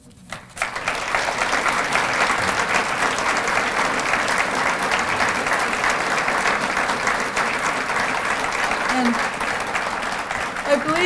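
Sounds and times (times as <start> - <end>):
audience applauding: 0.3 - 11.0.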